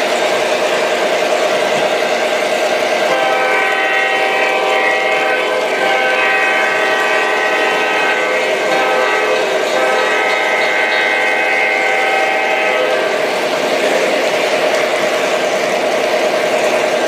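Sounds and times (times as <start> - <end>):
model train mechanical hum: 0.0 - 17.0
multi-tone train horn: 3.0 - 13.3.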